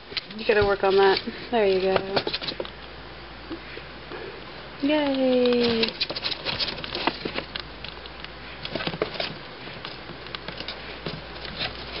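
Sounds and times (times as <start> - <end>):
squirrel claws scratching cardboard: 0.2 - 2.8, 5.1 - 12.0.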